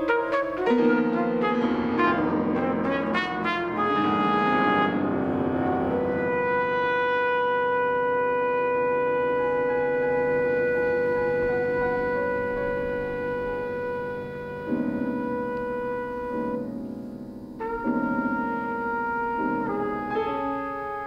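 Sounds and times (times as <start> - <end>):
piano chords: 0.0 - 21.0
trumpet melody: 0.0 - 21.0.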